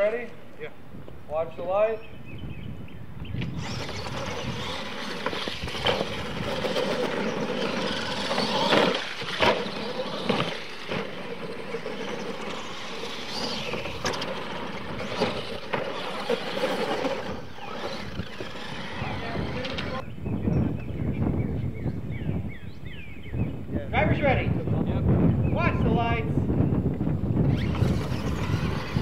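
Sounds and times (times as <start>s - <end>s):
toy truck motor whine: 3.4s - 20.0s, 27.4s - 29.0s.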